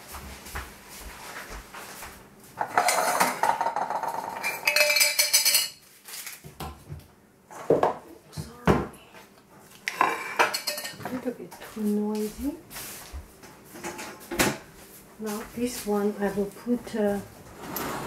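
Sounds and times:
metal pots and pans clattering: 0:02.6 - 0:05.8, 0:09.9 - 0:11.2, 0:13.8 - 0:14.6.

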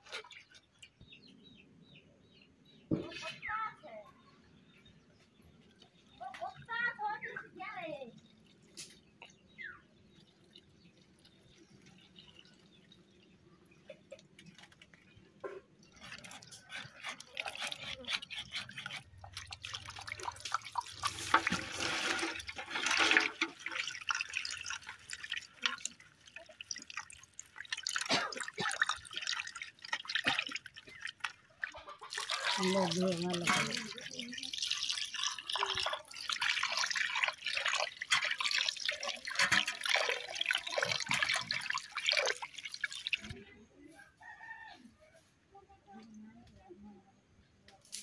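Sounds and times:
hands washing fish in water: 0:08.2 - 0:43.4.

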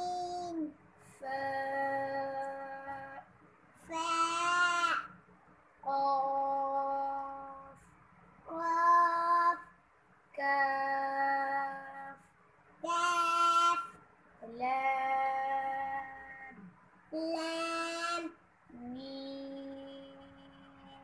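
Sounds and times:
children chanting sing-song: 0:03.9 - 0:05.1, 0:12.8 - 0:21.0.

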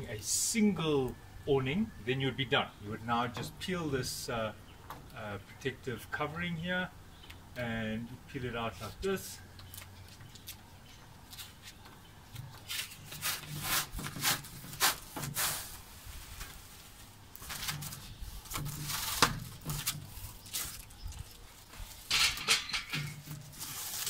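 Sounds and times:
plastic film being peeled: 0:12.6 - 0:22.1, 0:23.2 - 0:24.0.

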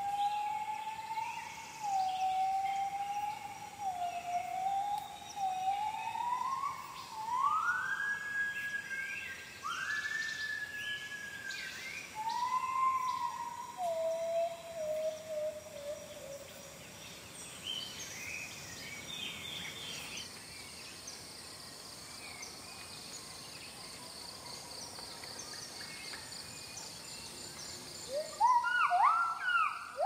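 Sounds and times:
high insect hum: 0:00.0 - 0:30.0
long clear whistled animal calls: 0:28.1 - 0:30.0.

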